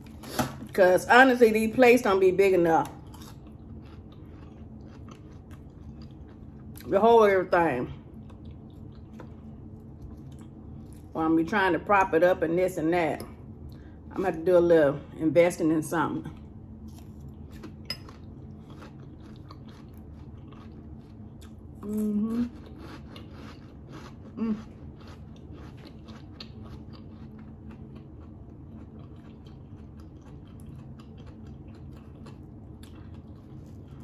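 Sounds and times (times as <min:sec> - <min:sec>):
chewing crunchy salad: 0:02.6 - 0:11.2, 0:16.3 - 0:34.0.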